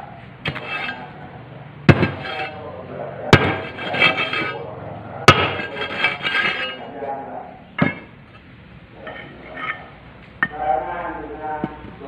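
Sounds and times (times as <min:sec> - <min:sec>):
hammer striking steel plate: 0:01.9 - 0:02.6, 0:03.3 - 0:04.6, 0:05.3 - 0:06.8
metallic ringing clatter: 0:03.4 - 0:04.6, 0:05.3 - 0:06.9, 0:07.8 - 0:08.4, 0:09.0 - 0:10.6.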